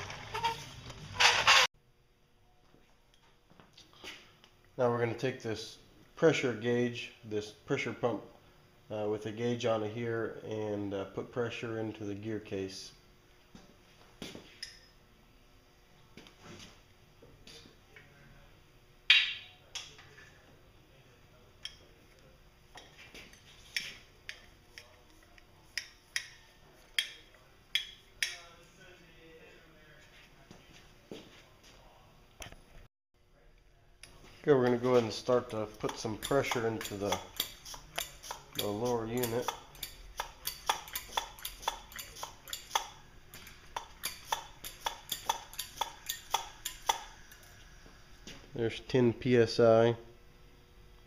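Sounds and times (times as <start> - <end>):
hand pump metallic clicks: 35.5 - 47.1.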